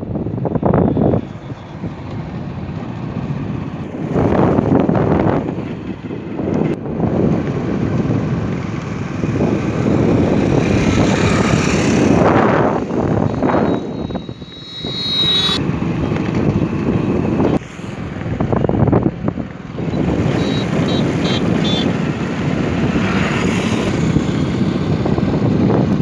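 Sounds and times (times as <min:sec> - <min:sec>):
vehicle driving on road: 0:00.0 - 0:26.0
wind on microphone: 0:00.0 - 0:26.0
thin high-pitched tone: 0:13.1 - 0:15.6.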